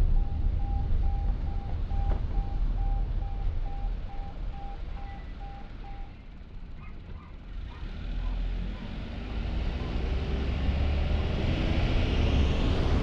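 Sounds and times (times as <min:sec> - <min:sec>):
car driving rumble: 0:00.0 - 0:13.0
short electronic beeps: 0:00.1 - 0:06.2.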